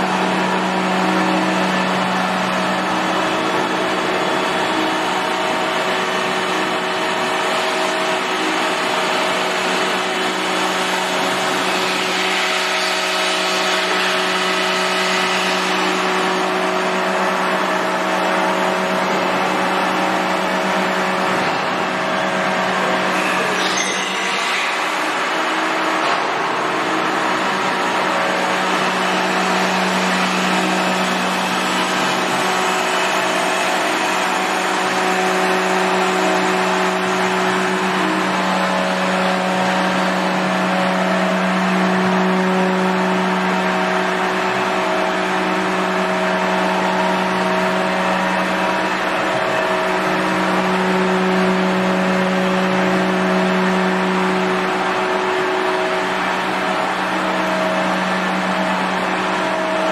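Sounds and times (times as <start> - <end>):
drilling machine hum: 0.0 - 59.9.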